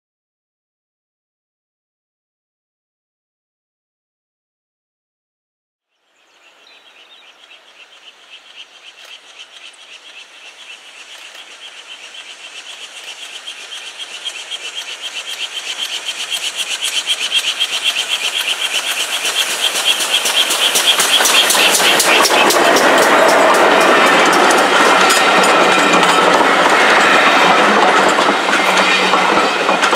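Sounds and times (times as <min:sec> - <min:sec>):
wheels clattering on rails: 0:06.5 - 0:29.9
steam locomotive exhaust beats: 0:07.0 - 0:29.9.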